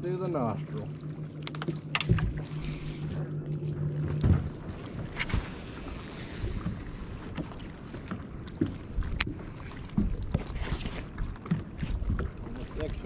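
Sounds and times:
water against boat: 0.0s - 13.0s.

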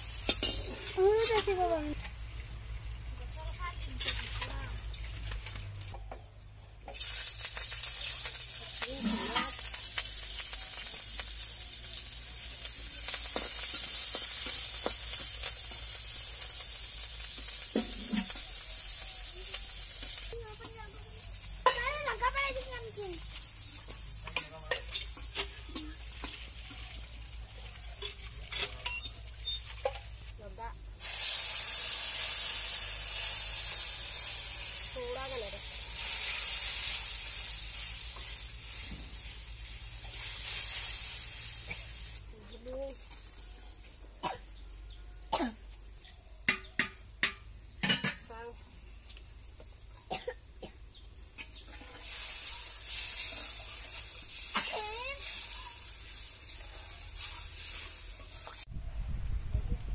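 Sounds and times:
onion sizzling in hot oil: 0.0s - 6.0s, 6.8s - 45.0s, 45.6s - 58.8s
metal spatula scraping a pan: 0.2s - 1.6s, 8.2s - 9.8s, 17.3s - 18.6s, 24.2s - 27.1s, 27.7s - 30.2s, 51.4s - 58.6s.

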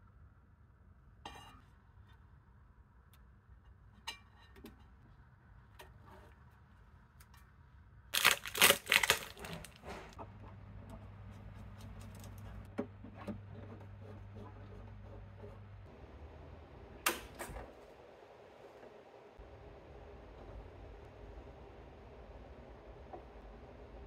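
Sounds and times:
plastic bag and foam crinkling: 8.2s - 10.2s
faint low hum: 9.0s - 24.0s.

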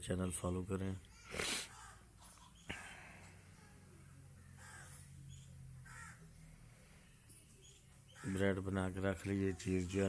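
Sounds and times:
crow cawing: 4.5s - 5.1s, 5.8s - 6.4s, 8.1s - 8.4s.

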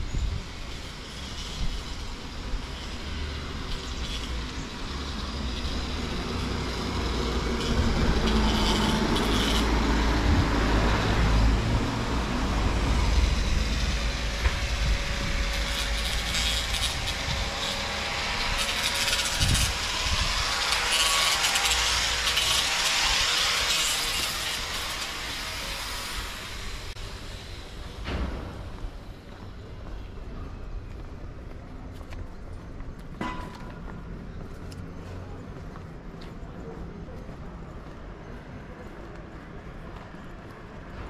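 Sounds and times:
street noise: 0.0s - 41.0s
large engine rumbling: 1.7s - 20.9s.

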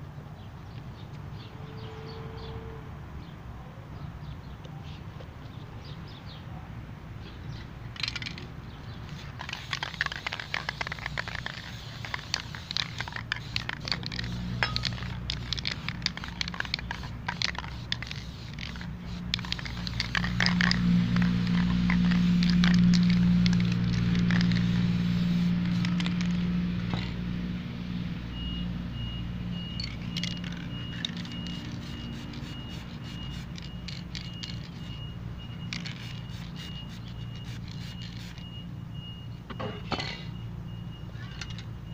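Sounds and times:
spray-paint cans hissing: 9.0s - 27.2s, 29.8s - 35.0s, 35.6s - 38.5s
cans and paper handled: 9.1s - 24.7s
low humming rumble: 12.3s - 32.9s.

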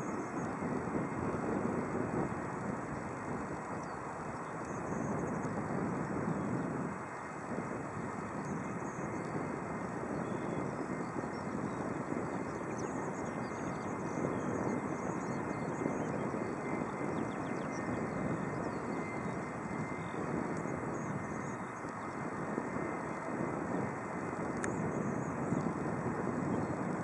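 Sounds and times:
jet engines at low power: 0.0s - 27.0s.

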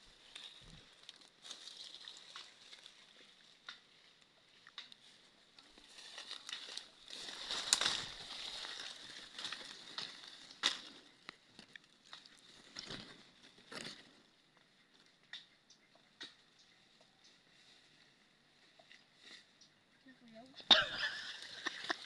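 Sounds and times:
leaves and twigs rustling: 0.0s - 22.0s
twigs snapping: 0.1s - 14.2s.

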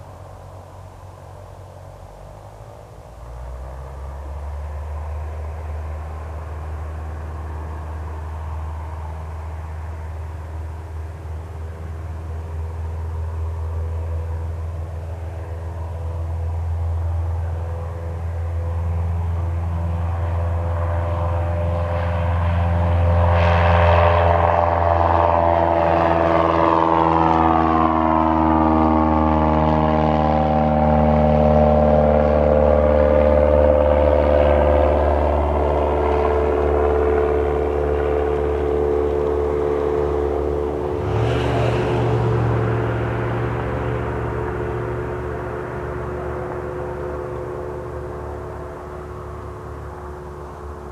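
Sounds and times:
airplane engine and propeller: 0.0s - 50.9s.

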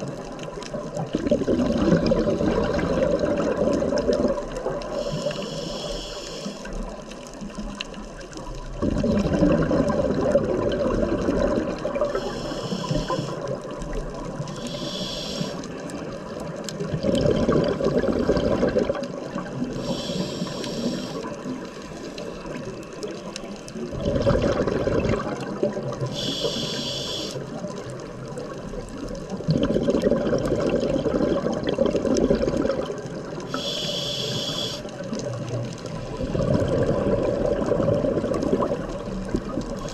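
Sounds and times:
exhaled bubbles rushing: 0.0s - 5.0s, 6.8s - 14.6s, 15.8s - 20.2s, 20.8s - 26.2s, 27.5s - 33.6s, 34.9s - 39.9s
regulator inhale hiss: 4.8s - 7.0s, 12.1s - 13.6s, 14.4s - 16.1s, 19.7s - 22.1s, 26.0s - 27.6s, 33.4s - 35.0s.

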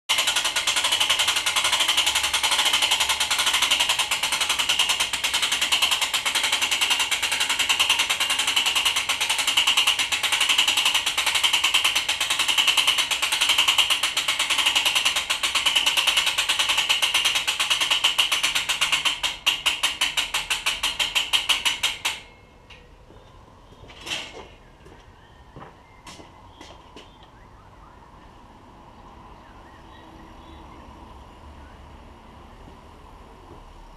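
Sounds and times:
mechanical clatter and clicks: 0.1s - 22.9s.

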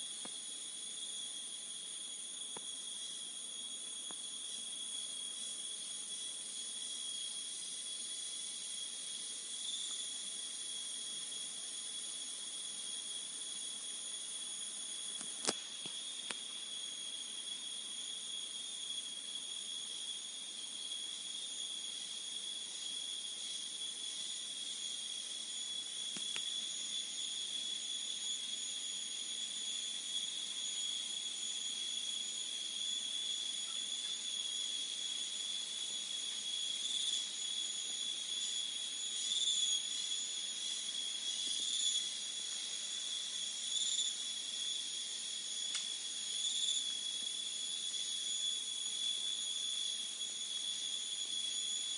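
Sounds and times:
crickets chirping: 0.0s - 51.9s.

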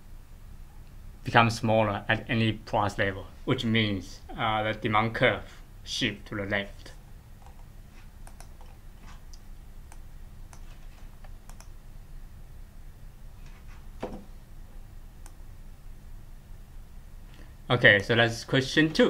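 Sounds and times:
low steady hum: 0.0s - 19.0s
computer clicks and ticks: 7.4s - 11.8s.

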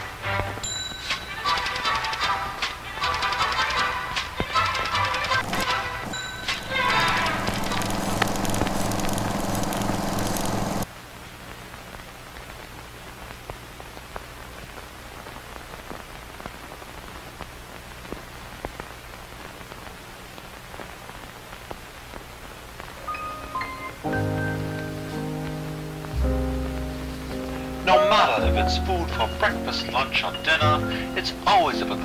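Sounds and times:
music with sustained notes: 0.0s - 10.8s, 23.0s - 32.0s
record crackle and pops: 0.0s - 32.0s
low steady hum: 5.4s - 15.3s.

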